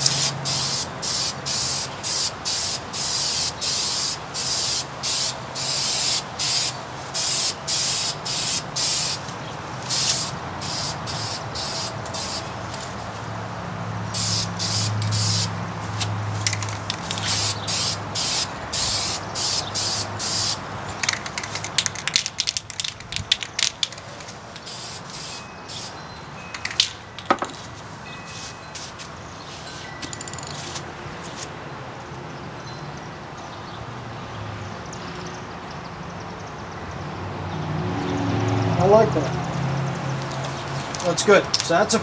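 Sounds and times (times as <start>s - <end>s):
aerosol spray can hissing: 0.0s - 9.2s, 9.9s - 12.5s, 14.2s - 15.5s, 17.0s - 20.6s, 24.7s - 25.9s
sharp clicks and knocks: 21.0s - 24.7s.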